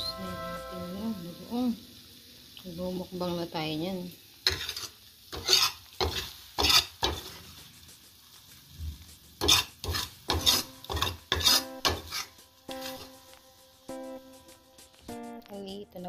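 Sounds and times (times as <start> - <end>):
spoon scraping a wok: 4.4 - 13.4.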